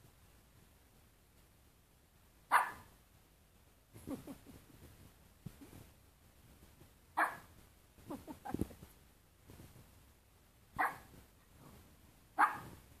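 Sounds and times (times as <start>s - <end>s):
small dog barking: 2.5s - 2.9s, 7.2s - 7.5s, 10.8s - 11.1s, 12.4s - 12.8s.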